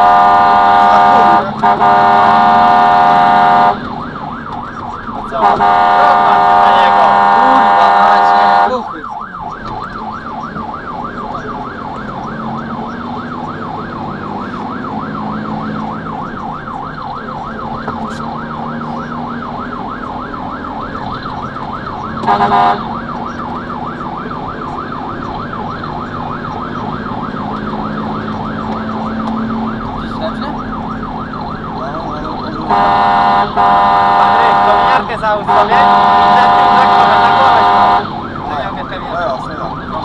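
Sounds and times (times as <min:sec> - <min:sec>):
air horn blast: 0:00.0 - 0:04.0, 0:05.3 - 0:08.9, 0:22.2 - 0:23.1, 0:32.7 - 0:38.2
diesel engine running: 0:00.0 - 0:40.0
fire engine siren yelping: 0:00.0 - 0:40.0.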